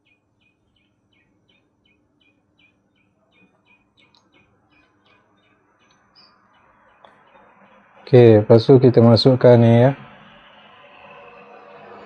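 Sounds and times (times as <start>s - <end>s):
faint bird chirps: 0.0s - 8.2s
faint small clicks: 3.4s - 4.3s.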